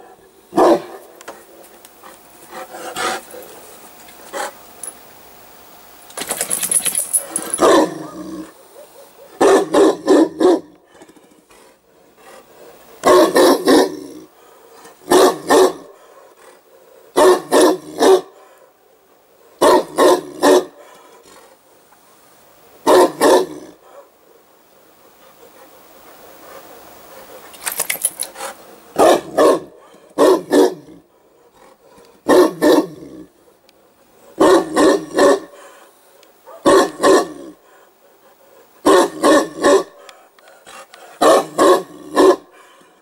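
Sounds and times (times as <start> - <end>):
dog barking: 0.5 - 1.0, 7.6 - 10.7, 13.0 - 14.0, 15.1 - 16.0, 17.1 - 18.6, 19.6 - 20.9, 22.8 - 24.1, 29.0 - 30.8, 32.2 - 33.0, 34.4 - 35.6, 36.4 - 37.5, 38.8 - 40.1, 41.2 - 42.5.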